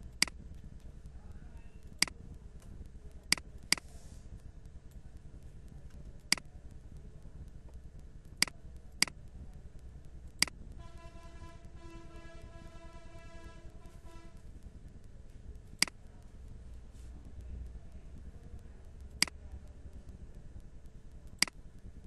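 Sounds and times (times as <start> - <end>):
computer mouse clicking: 0.0 - 1.2, 1.8 - 10.8, 14.6 - 16.3, 17.3 - 22.0
steady low hum: 0.0 - 22.0.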